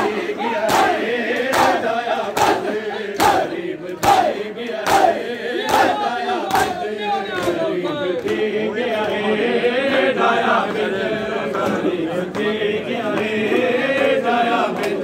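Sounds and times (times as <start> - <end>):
men chanting: 0.0 - 15.0
hands slapping chests: 3.2 - 5.9.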